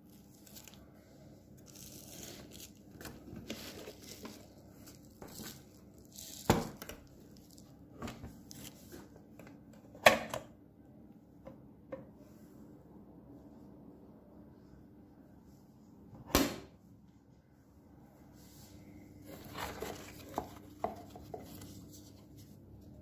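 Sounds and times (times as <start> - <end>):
plastic wrapping crinkling: 0.0 - 1.0, 1.6 - 7.8.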